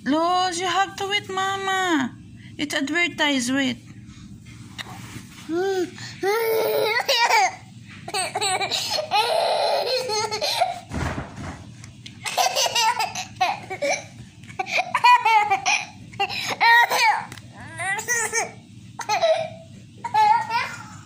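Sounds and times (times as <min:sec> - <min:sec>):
toddler laughing: 0:05.5 - 0:10.8, 0:12.2 - 0:21.0.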